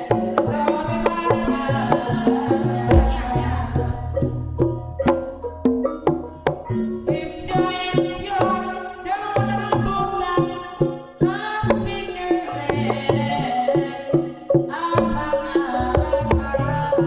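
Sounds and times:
woman singing: 0:00.0 - 0:04.4, 0:07.1 - 0:17.0
pitched percussion: 0:00.0 - 0:17.0
hand drum strokes: 0:01.1 - 0:08.3.

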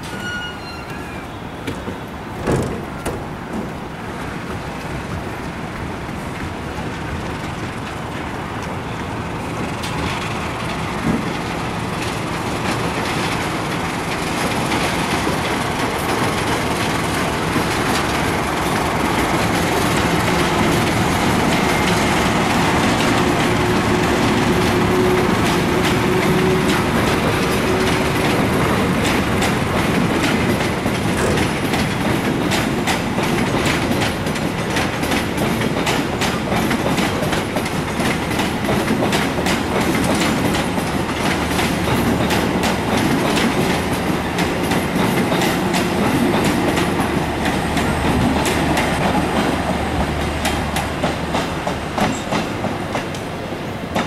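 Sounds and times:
train wheels clattering: 0:00.0 - 0:54.0.

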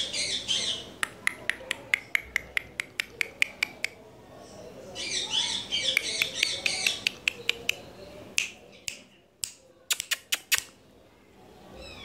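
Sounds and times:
parakeet sharp clicks: 0:01.0 - 0:04.0, 0:05.9 - 0:07.8, 0:08.4 - 0:10.7.

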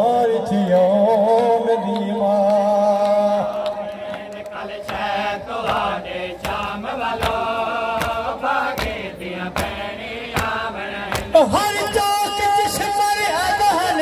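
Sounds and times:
crowd of men chanting: 0:00.0 - 0:14.0
hands slapping chests: 0:02.5 - 0:11.4.

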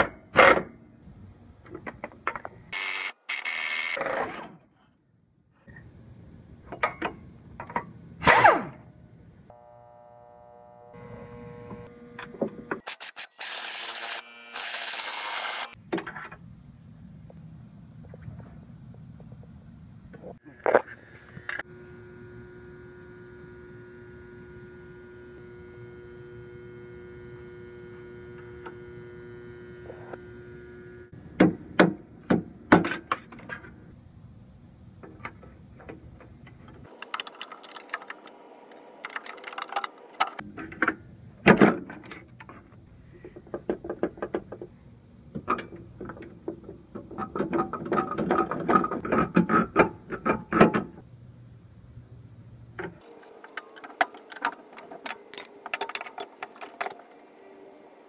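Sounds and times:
low steady hum: 0:08.8 - 0:12.8, 0:15.8 - 0:43.6
metal tools clinking: 0:32.9 - 0:33.8, 0:53.1 - 0:57.2.

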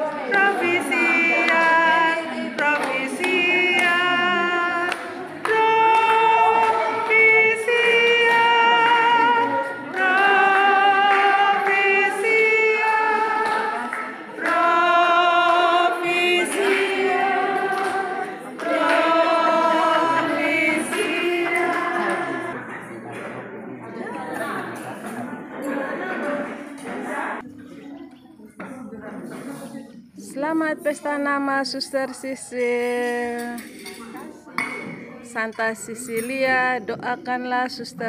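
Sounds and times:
choir singing slow song: 0:00.0 - 0:22.8.

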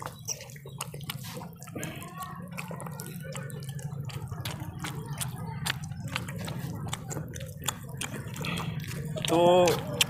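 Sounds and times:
mouths chewing and smacking: 0:00.0 - 0:10.0.

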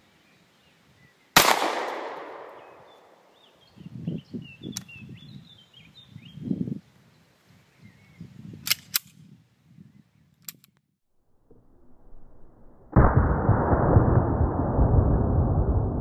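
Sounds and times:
faint sharp cracks: 0:01.4 - 0:03.3
pistol shots: 0:01.4 - 0:03.3.

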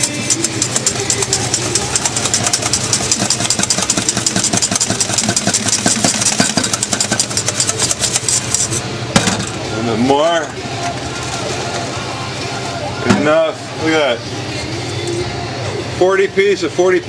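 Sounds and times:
whisk beating batter in a pan: 0:00.0 - 0:08.8.

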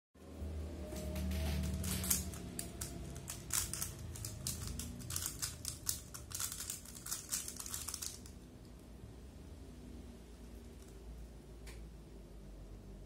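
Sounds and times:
speed cube layers clicking: 0:01.8 - 0:08.4.

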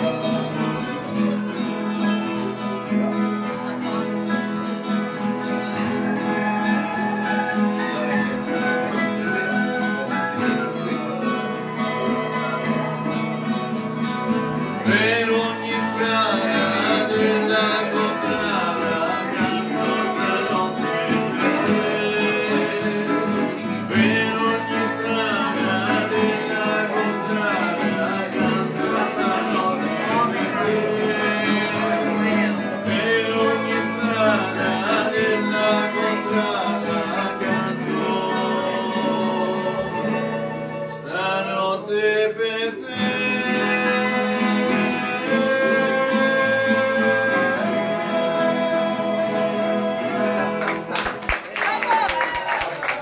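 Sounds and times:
strummed mandolin and guitar: 0:00.0 - 0:52.0
men singing together: 0:14.8 - 0:50.8.

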